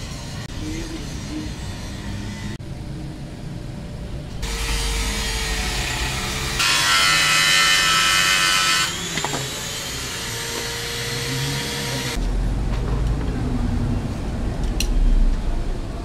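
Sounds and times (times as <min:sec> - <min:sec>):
power tool running: 0:04.4 - 0:12.2.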